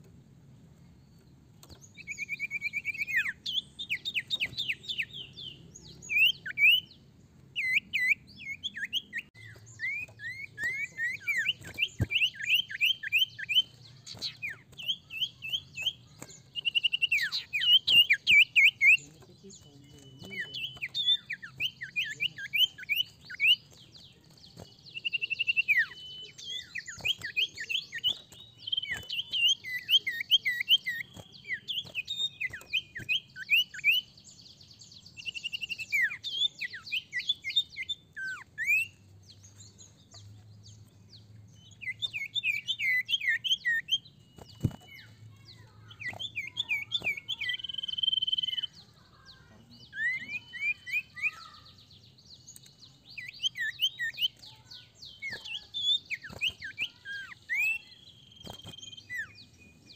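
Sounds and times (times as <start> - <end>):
bird whistling calls: 2.0 - 6.9, 7.6 - 15.8, 16.5 - 19.1, 35.2 - 39.0, 41.8 - 51.7, 53.1 - 59.6
buzzy bird trill: 7.6 - 40.4, 41.7 - 59.9.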